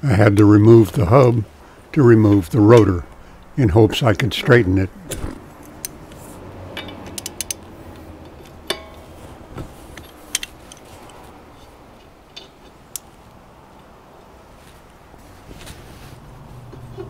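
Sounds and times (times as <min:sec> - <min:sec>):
metal tools clinking: 0:06.7 - 0:07.6, 0:08.3 - 0:09.2.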